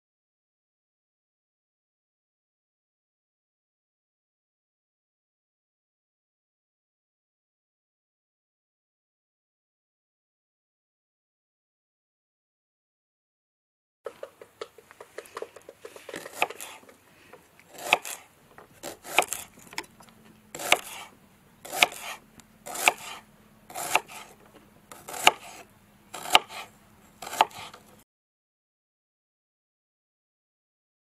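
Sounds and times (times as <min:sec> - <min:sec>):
knife slicing onion on board: 0:14.1 - 0:28.0.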